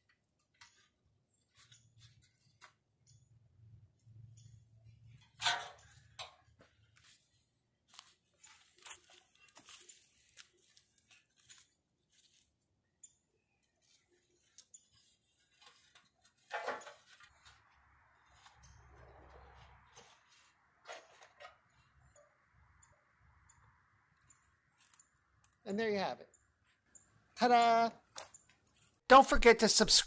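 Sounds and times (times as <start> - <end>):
rustling and crunching: 4.9 - 12.8, 13.6 - 21.8, 24.4 - 25.6.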